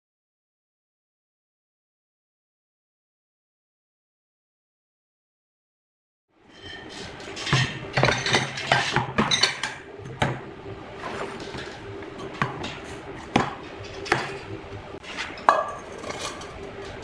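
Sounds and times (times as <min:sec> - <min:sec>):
low hum: 0:09.6 - 0:17.0
metal cup knocks and clinks: 0:15.4 - 0:16.0.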